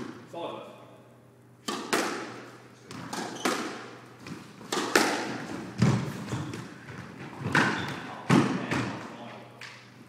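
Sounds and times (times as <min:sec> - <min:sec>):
squash ball hits: 0:01.6 - 0:09.1.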